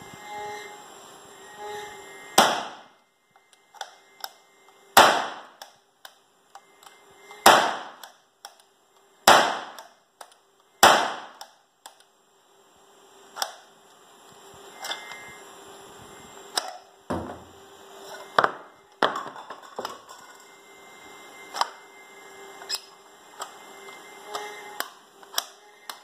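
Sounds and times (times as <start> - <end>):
launcher gunshots: 2.4 - 2.8, 5.0 - 5.5, 7.4 - 8.0, 9.3 - 9.8, 10.8 - 11.4.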